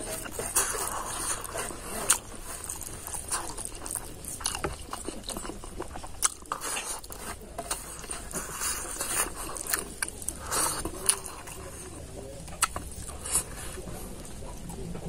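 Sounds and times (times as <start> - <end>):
wet mouth sounds: 0.0 - 11.9, 12.5 - 13.8
person chewing food: 0.0 - 15.0.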